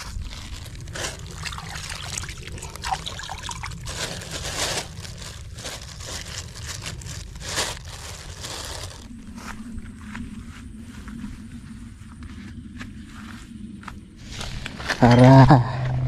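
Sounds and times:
plastic sack crinkling: 0.0 - 9.1
water trickling: 1.3 - 3.9.

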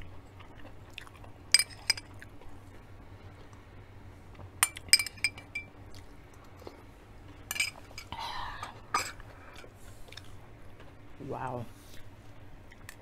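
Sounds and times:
metal spoon clinking on glass dish: 1.6 - 2.1, 4.6 - 5.7, 7.5 - 8.1.

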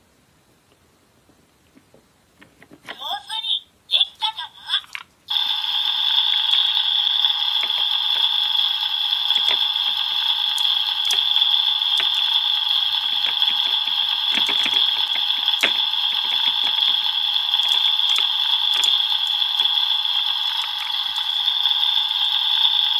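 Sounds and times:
electronic sizzle from toy speaker: 5.3 - 22.9
plastic toy food clicks: 9.3 - 9.8, 10.5 - 19.8.

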